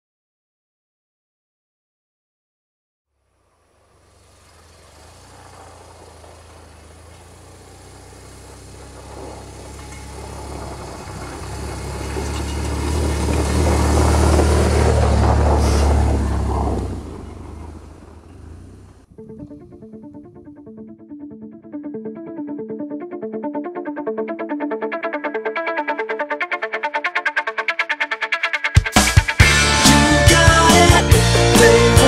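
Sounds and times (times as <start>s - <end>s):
motorcycle engine rumble: 3.2s - 20.6s
music: 19.1s - 32.0s.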